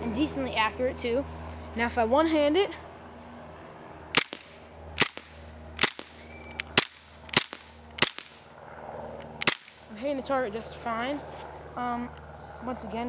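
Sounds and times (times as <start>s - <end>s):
airsoft pistol shots: 4.2s - 8.4s, 9.4s - 9.8s.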